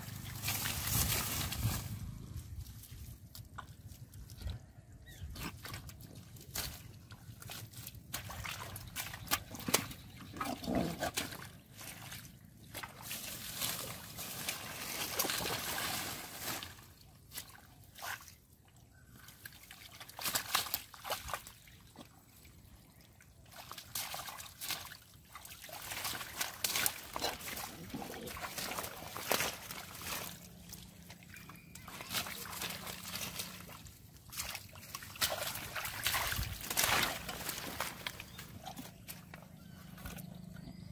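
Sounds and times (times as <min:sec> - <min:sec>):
squelching and splashing in mud: 0:00.0 - 0:40.9.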